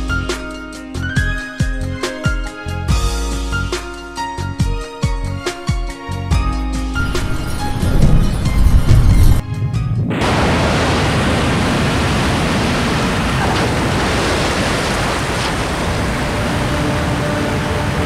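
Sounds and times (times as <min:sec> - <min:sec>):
music: 0:00.0 - 0:10.4
heavy rain: 0:10.1 - 0:18.0.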